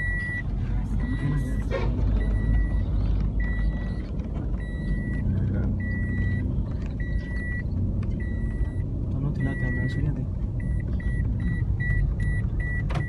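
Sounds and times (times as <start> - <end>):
high electronic warning beep: 0.0 - 0.4, 1.0 - 2.8, 3.4 - 10.0
car engine and tyre rumble: 0.0 - 13.0.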